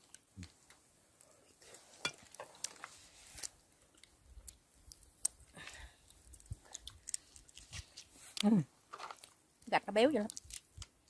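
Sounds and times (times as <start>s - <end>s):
chewing: 0.0s - 11.0s
crab shell cracking: 2.2s - 11.0s.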